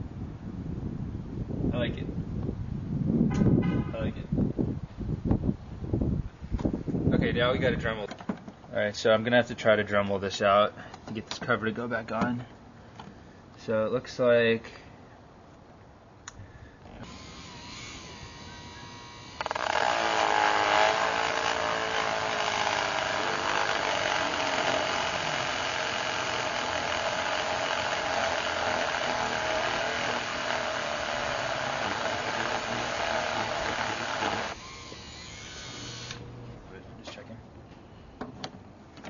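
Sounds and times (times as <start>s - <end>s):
rotary tool grinding plastic: 16.8s - 36.3s.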